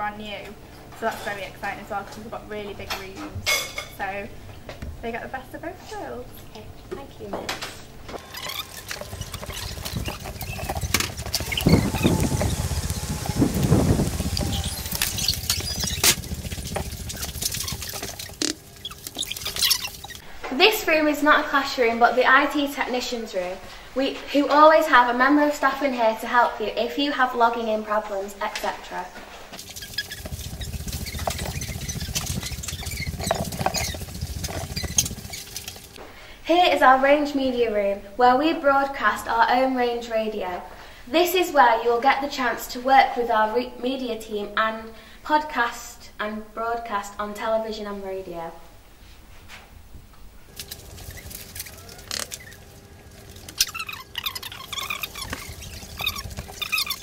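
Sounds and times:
steady low hum: 4.2s - 25.2s, 48.5s - 57.0s
footsteps: 8.1s - 20.2s
small clicks and squeaks: 8.1s - 20.2s, 29.6s - 36.0s, 50.5s - 57.0s
dense rustle: 8.2s - 20.2s, 50.4s - 57.0s.

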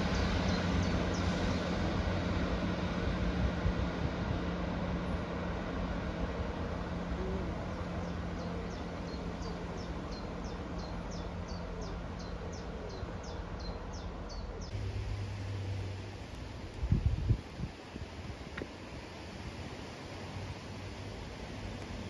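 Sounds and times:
bird singing: 0.0s - 1.7s, 7.2s - 14.8s
diesel train engine drone: 0.0s - 22.0s.

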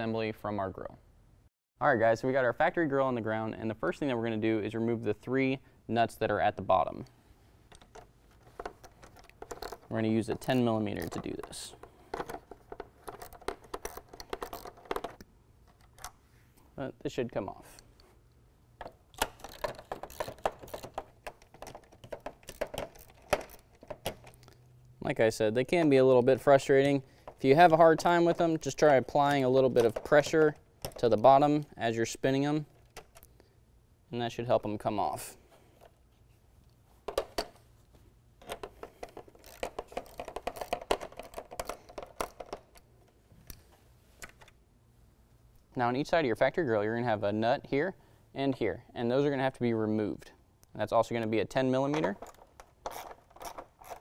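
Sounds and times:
hand ratchet clicking: 7.7s - 15.2s, 19.2s - 24.5s, 38.4s - 42.8s, 52.2s - 54.0s.

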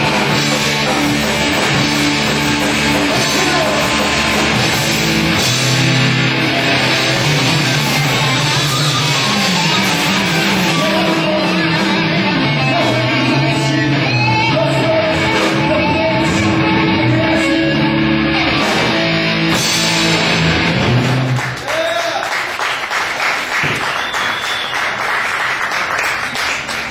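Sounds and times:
distorted electric guitar: 0.0s - 21.5s
live rock band: 0.0s - 21.7s
crowd clapping: 7.8s - 10.2s, 20.9s - 26.9s.

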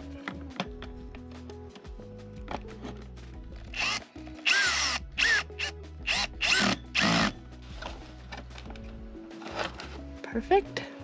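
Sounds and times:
cordless drill driving screw: 3.7s - 7.4s.

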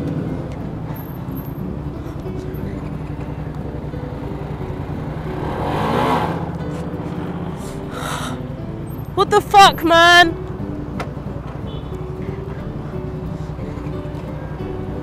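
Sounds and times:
motorcycle engine running: 0.0s - 9.2s
road and wind rumble: 0.0s - 15.0s.

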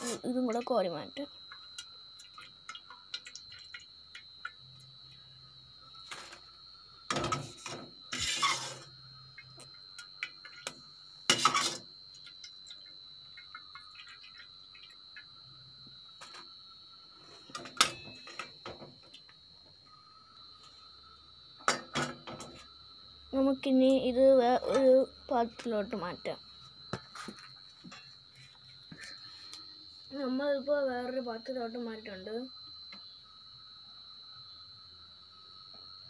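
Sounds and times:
ladle scraping metal pan: 7.4s - 8.9s, 11.3s - 11.8s.

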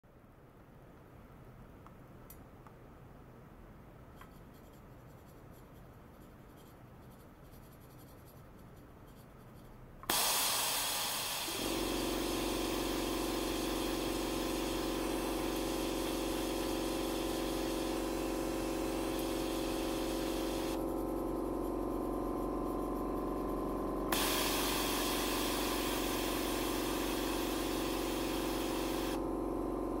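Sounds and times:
steady hiss: 10.0s - 20.8s, 24.1s - 29.2s
low humming tones: 10.5s - 30.0s.

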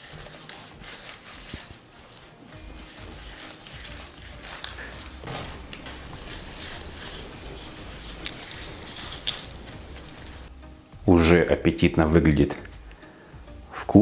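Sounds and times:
squelching marinade rubbed into meat: 0.0s - 10.6s.

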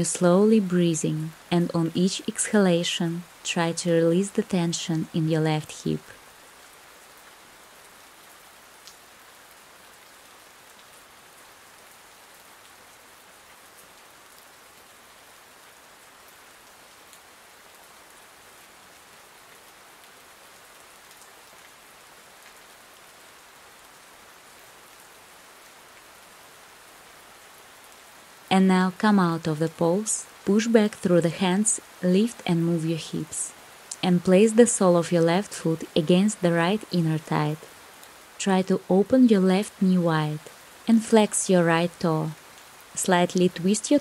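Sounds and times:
steady rain falling: 0.0s - 44.0s.

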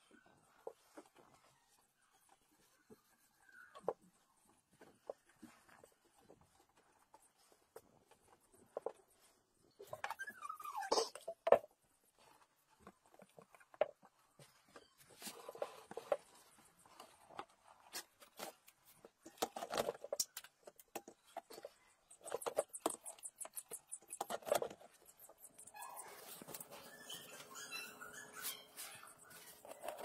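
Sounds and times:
brief squeak: 9.9s - 11.4s, 25.6s - 29.9s.

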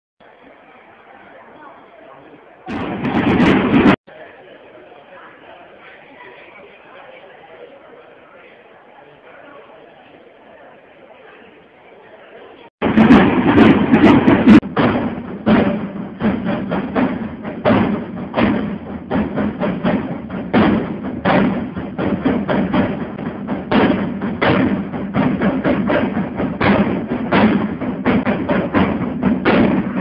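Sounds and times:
marching side drums: 2.7s - 4.0s, 12.8s - 30.0s.

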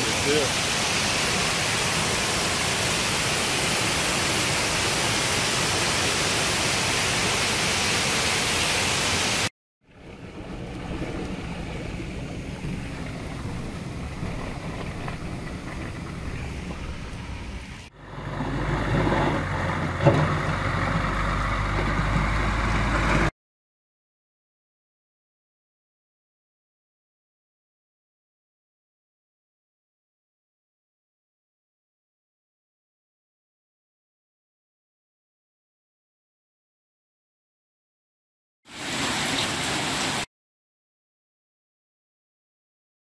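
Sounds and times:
loud outdoor rush: 0.0s - 23.3s, 38.7s - 40.3s
low outdoor rumble: 9.9s - 23.3s
pickup truck driving through mud: 10.2s - 23.3s.

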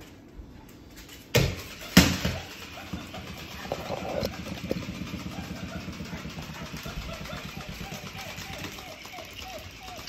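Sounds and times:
small motor buzzing rattle: 1.6s - 10.0s.

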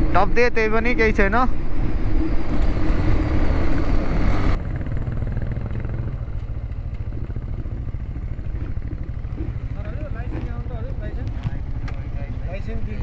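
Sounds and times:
rush of noise: 0.0s - 10.4s
motorcycle engine running: 0.0s - 13.0s.

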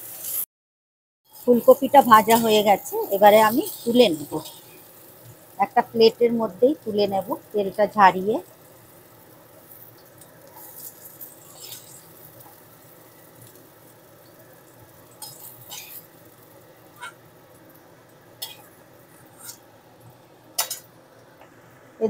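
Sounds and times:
faint oil sizzle: 0.0s - 0.5s, 1.3s - 22.0s
utensil scraping and clinking on pan: 15.2s - 16.0s.

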